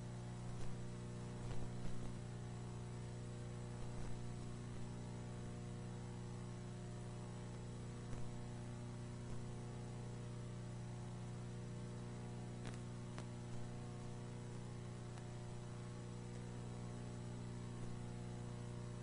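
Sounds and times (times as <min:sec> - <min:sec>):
electrical hum with hiss: 0:00.0 - 0:19.0
faint clicks: 0:12.6 - 0:13.7, 0:16.3 - 0:16.5.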